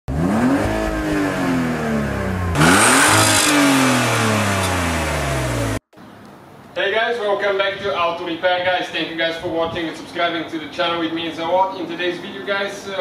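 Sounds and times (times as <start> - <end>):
car engine revving: 0.1 - 5.8.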